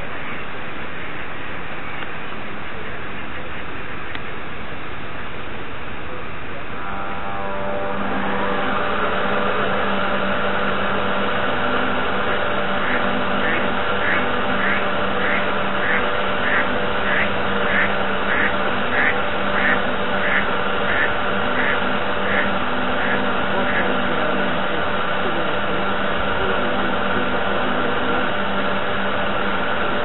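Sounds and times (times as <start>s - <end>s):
model boat motor whining: 6.6s - 30.0s.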